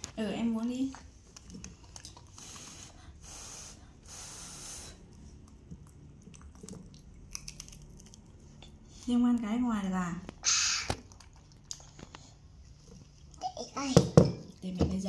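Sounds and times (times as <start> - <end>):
crunchy chewing: 5.1 - 9.0.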